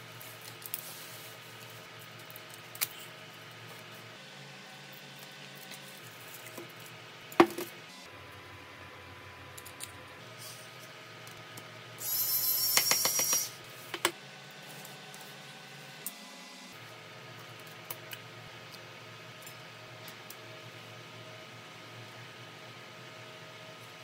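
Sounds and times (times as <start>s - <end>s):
metal tools clicking on phone: 12.6s - 13.5s.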